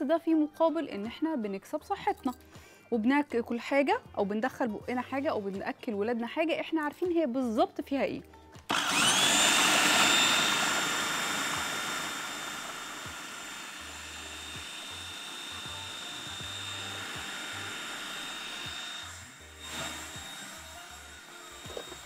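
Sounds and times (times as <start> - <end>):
food processor motor whining: 8.7 - 22.0.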